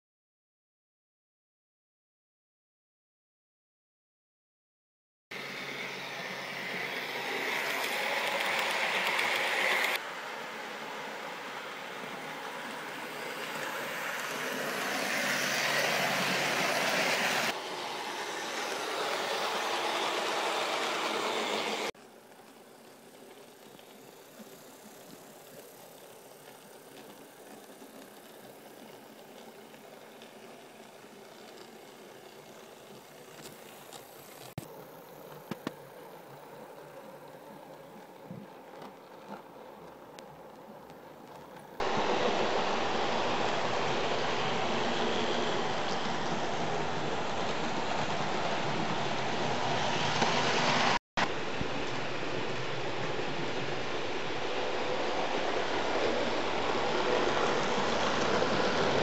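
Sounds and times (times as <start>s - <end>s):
model train rattling on track: 5.6s - 10.0s, 12.0s - 34.5s.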